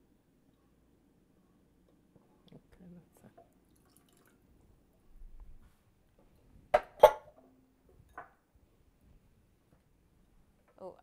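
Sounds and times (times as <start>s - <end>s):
water poured into sauce: 3.6s - 4.4s.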